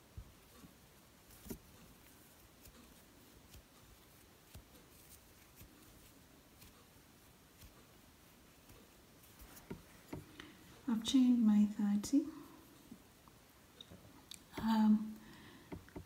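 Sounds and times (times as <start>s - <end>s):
hook tapping: 15.6s - 16.0s.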